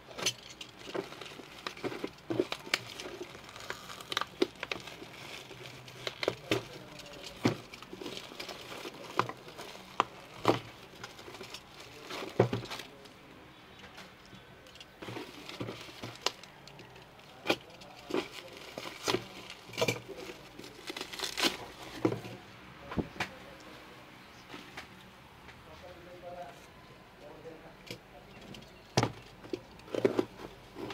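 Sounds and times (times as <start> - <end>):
plastic packaging crinkling: 0.2 - 13.1, 15.0 - 22.3.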